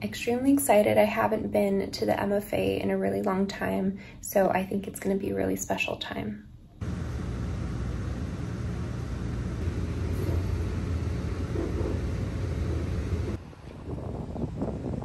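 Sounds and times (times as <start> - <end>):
vehicle rumble: 6.8 - 13.4.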